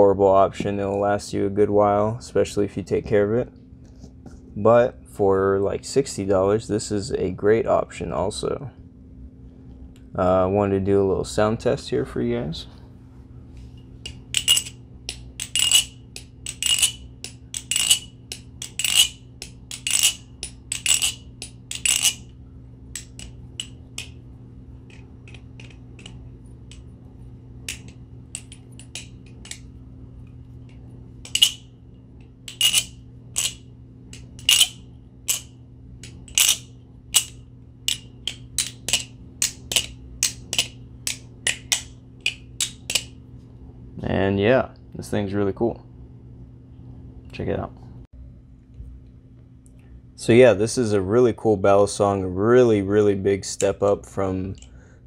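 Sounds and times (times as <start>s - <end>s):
steady low hum: 0.0s - 55.0s
balisong handles clacking: 14.0s - 22.3s, 22.9s - 24.2s, 24.8s - 26.9s, 27.6s - 43.1s.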